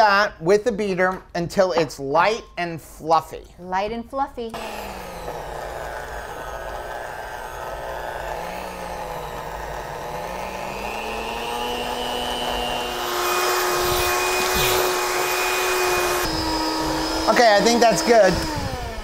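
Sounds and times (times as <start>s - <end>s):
electric hand mixer whine: 4.5s - 19.0s.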